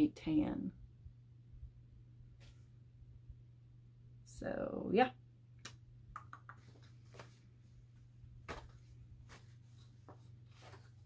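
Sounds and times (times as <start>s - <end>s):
steady low hum: 0.0s - 11.0s
papers rustling and clicking: 8.4s - 11.0s.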